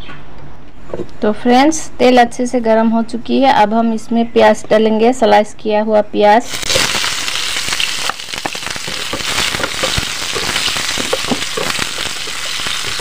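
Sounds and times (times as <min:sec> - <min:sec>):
onions sizzling in oil: 0:06.4 - 0:13.0.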